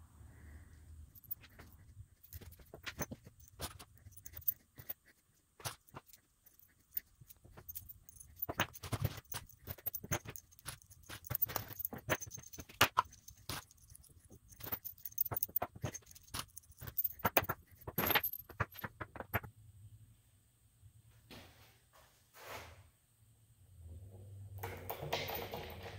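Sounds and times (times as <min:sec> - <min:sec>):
metal hardware clinking: 0:01.2 - 0:05.0, 0:05.6 - 0:19.4.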